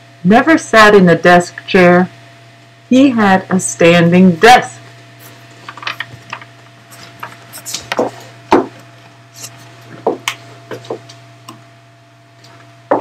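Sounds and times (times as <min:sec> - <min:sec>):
knocks and rubs on wooden desk: 0:07.6 - 0:08.8, 0:09.9 - 0:11.0.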